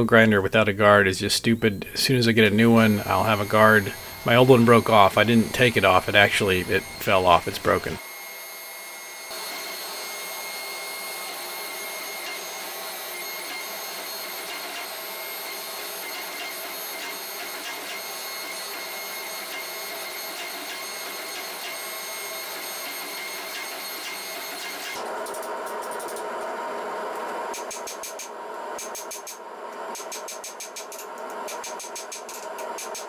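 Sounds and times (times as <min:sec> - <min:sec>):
gas forge hissing: 0:00.0 - 0:08.0.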